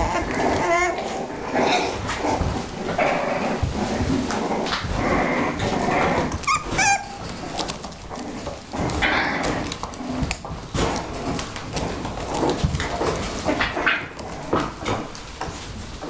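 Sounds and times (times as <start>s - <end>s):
puppies whimpering and yipping: 0.0s - 2.5s, 4.8s - 7.6s
clicks and rustles: 0.0s - 16.0s
high-pitched puppy yelps: 6.4s - 7.2s.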